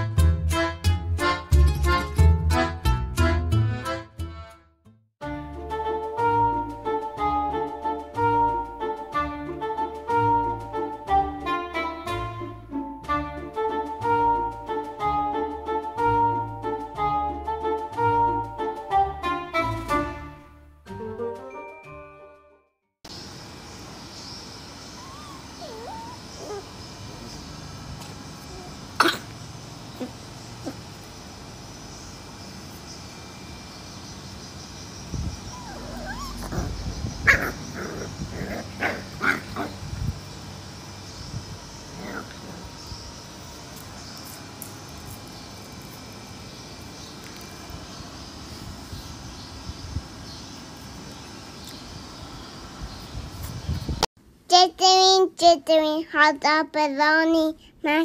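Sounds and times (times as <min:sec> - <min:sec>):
puppies whining: 0:24.9 - 0:27.4, 0:28.4 - 0:31.1, 0:35.2 - 0:39.8.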